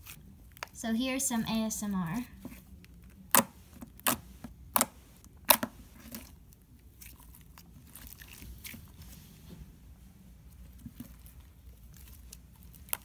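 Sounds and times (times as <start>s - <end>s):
slime being squeezed: 3.3s - 9.0s.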